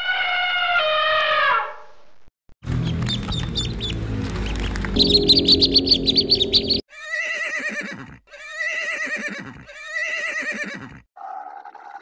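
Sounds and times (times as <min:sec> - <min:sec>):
high chirping: 0:02.8 - 0:06.8.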